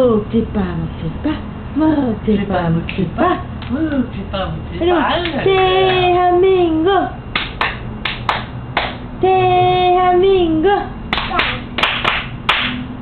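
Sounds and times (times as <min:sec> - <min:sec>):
quick hand claps: 0:07.3 - 0:09.0, 0:11.1 - 0:12.9.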